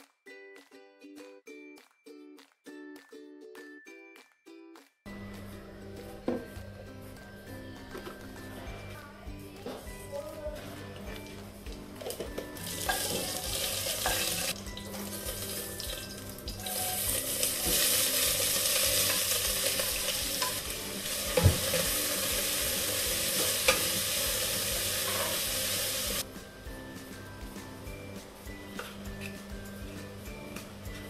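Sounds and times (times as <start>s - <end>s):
quiet background music: 0.0s - 31.0s
food sizzling in hot oil: 12.6s - 26.2s.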